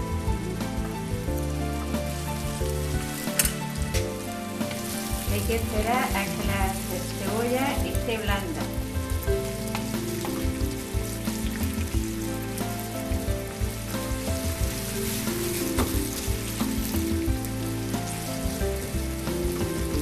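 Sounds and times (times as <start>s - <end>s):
onion sizzling in a frying pan: 0.0s - 20.0s
wooden spoon tapping and scraping: 9.6s - 10.6s.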